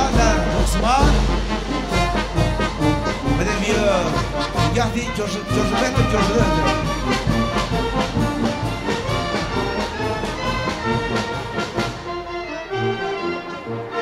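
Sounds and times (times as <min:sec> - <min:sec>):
sharp high drum beat: 0:00.0 - 0:12.0
marching brass band playing: 0:00.0 - 0:14.0.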